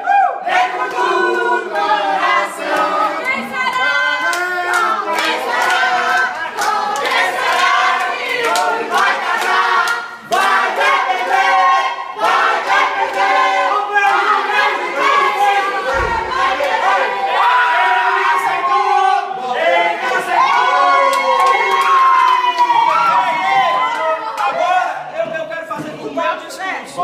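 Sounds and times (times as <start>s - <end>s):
crowd singing: 0.2s - 21.6s
hand claps: 4.2s - 10.5s.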